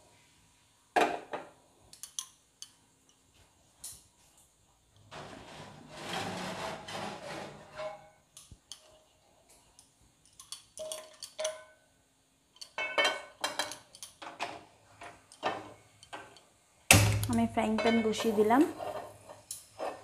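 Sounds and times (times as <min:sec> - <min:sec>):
cookware scraping: 0:05.1 - 0:09.0, 0:17.4 - 0:20.0
frying pan clattering on stove: 0:16.9 - 0:20.0.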